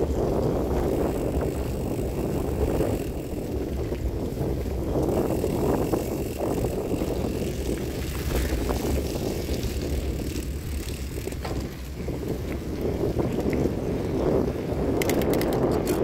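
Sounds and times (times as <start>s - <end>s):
bicycle tyre rumble: 0.0s - 16.0s
bike rattles and clicks: 0.0s - 16.0s.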